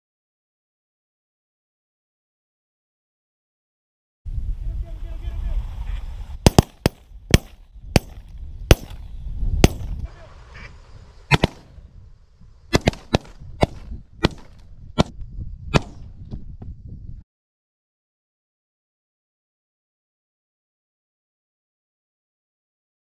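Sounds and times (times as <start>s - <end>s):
shotgun shots: 6.4s - 10.0s, 11.3s - 11.8s, 12.7s - 16.2s.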